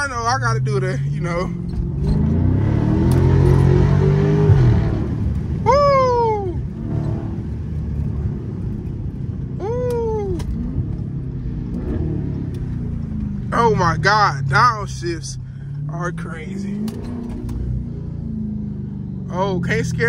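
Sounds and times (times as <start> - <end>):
car engine accelerating hard: 0.0 - 20.0.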